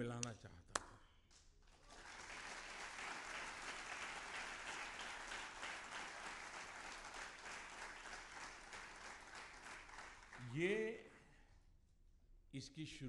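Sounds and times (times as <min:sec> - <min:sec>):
audience applauding: 0:01.6 - 0:10.6.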